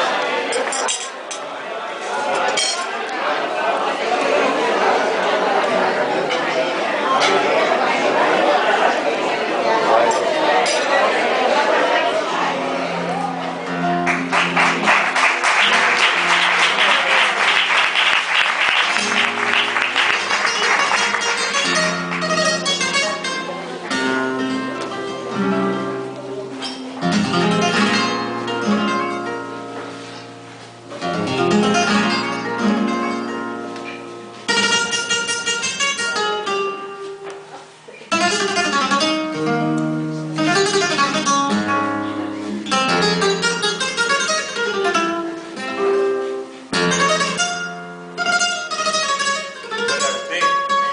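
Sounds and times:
flamenco guitar: 12.3 - 50.9.

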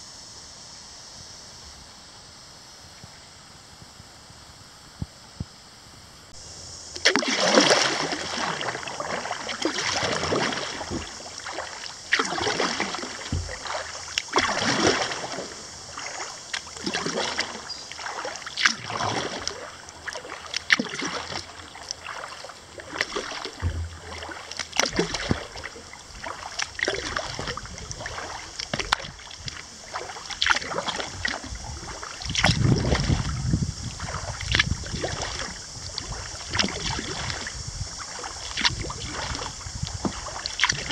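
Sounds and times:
kayak paddle splashing: 6.3 - 40.9
low rumble: 23.6 - 24.1.

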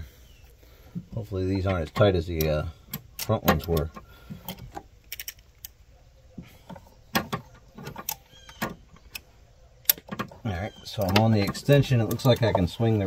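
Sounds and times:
ratchet metallic clicks: 10.9 - 12.7.

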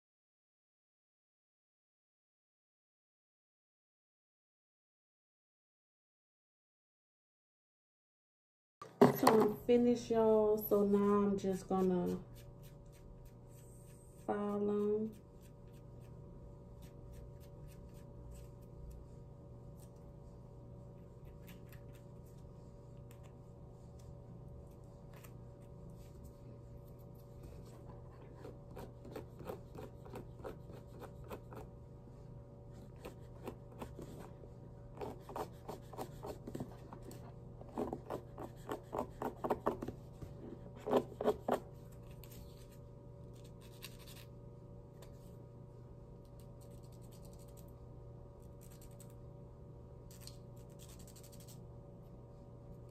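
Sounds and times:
nail file rasping: 28.3 - 31.7, 35.0 - 36.4, 37.7 - 39.9.

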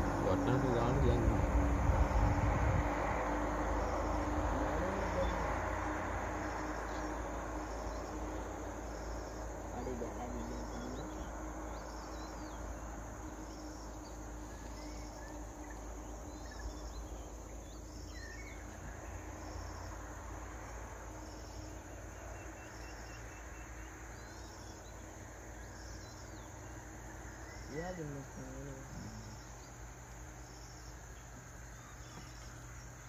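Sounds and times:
low even rumble: 0.0 - 8.9
high insect chorus: 0.0 - 33.0
pulsed insect chirp: 0.0 - 33.0
bird calls: 6.4 - 33.0.

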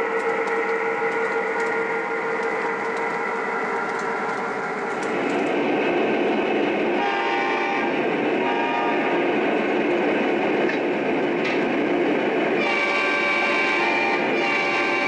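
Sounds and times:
model train rolling on track: 0.0 - 15.0
model train horn chord: 7.0 - 9.1, 12.6 - 15.0.

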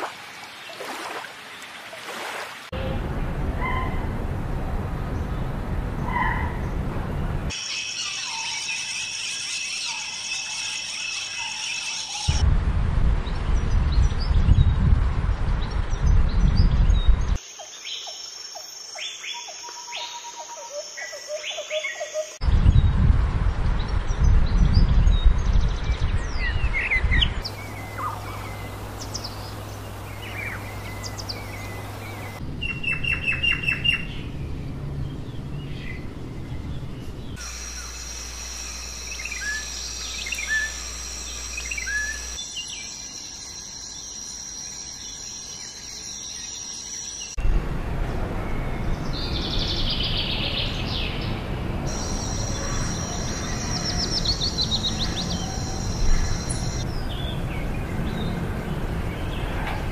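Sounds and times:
outdoor background noise: 0.0 - 59.9
birds chirping and calling: 7.5 - 12.4, 26.2 - 34.3, 37.0 - 44.3, 48.9 - 58.4
fast repeated bird notes: 27.4 - 34.1, 37.4 - 42.9
steady high tone: 37.4 - 43.1.

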